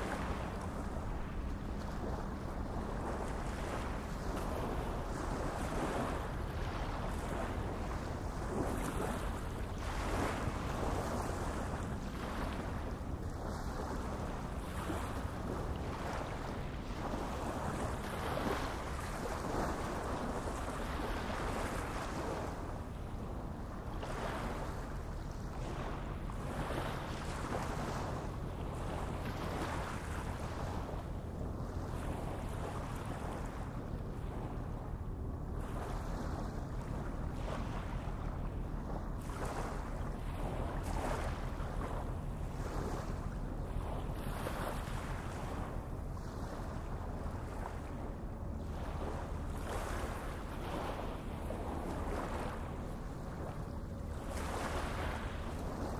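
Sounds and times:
water noise: 0:00.0 - 0:55.9
wind: 0:00.0 - 0:55.9.

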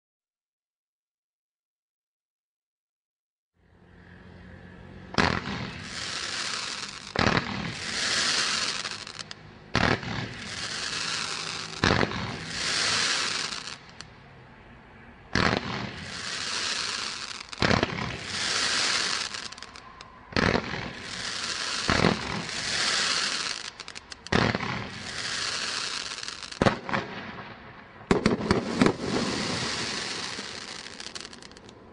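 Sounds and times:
firework bangs: 0:05.1 - 0:14.1, 0:15.3 - 0:31.9
firework crackling: 0:05.2 - 0:14.1, 0:15.3 - 0:31.9.

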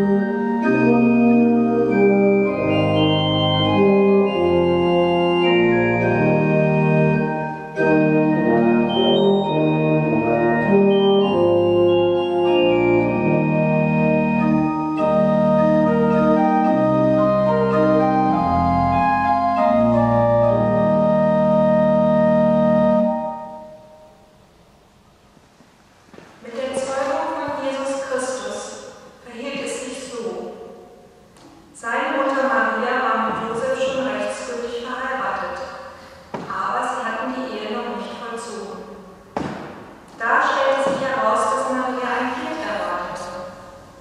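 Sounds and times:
organ and euphonium chords: 0:00.0 - 0:24.5.

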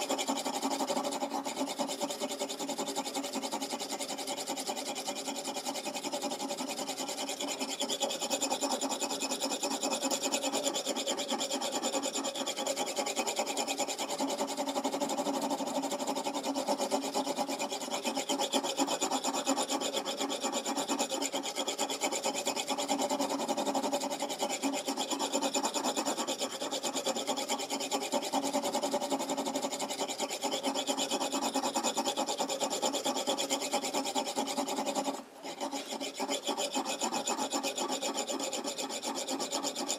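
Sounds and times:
sharpening stone scraping knife: 0:00.0 - 0:39.9.

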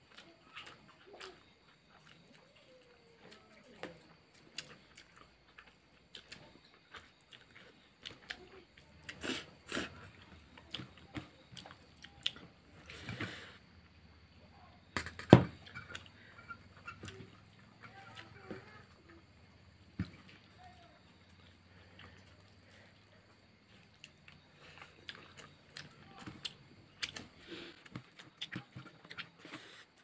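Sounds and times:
chewing and mouth smacks: 0:00.1 - 0:13.1, 0:19.9 - 0:30.0.

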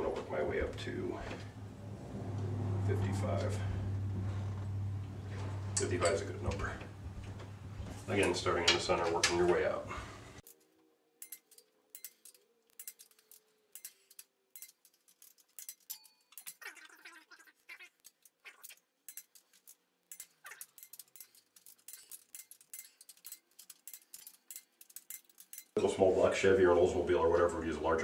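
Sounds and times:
ratchet wrench clicking: 0:11.2 - 0:16.6, 0:18.0 - 0:25.8.

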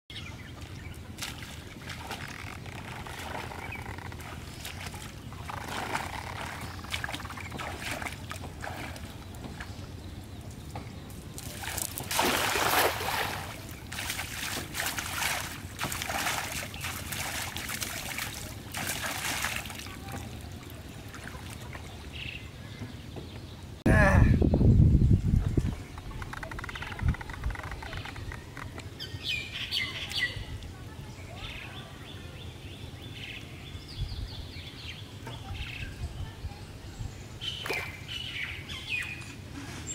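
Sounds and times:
person wading through water: 0:00.4 - 0:09.8, 0:11.4 - 0:22.2
small splashes and sloshes: 0:00.5 - 0:09.8, 0:11.4 - 0:22.1, 0:37.5 - 0:38.1
cast net splashing into water: 0:04.2 - 0:09.1, 0:11.4 - 0:20.4, 0:37.6 - 0:38.0.

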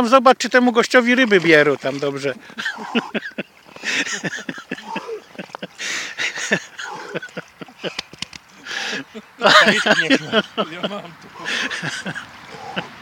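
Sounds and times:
person grunting: 0:04.8 - 0:05.3
person breathing hard: 0:04.8 - 0:08.0, 0:08.6 - 0:09.1, 0:11.4 - 0:11.9, 0:12.5 - 0:13.0.

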